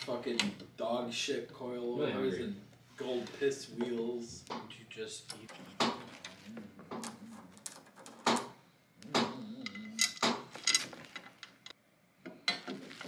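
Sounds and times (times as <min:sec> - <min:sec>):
carbon fibre parts clinking: 0:09.6 - 0:11.8.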